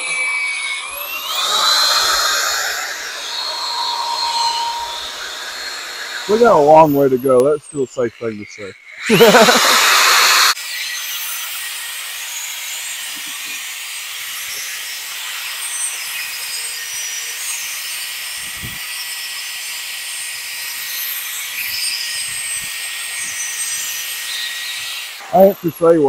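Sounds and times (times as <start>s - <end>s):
electric drill motor whine: 0.0s - 26.0s
sanding pad scratching plastic: 9.1s - 10.6s.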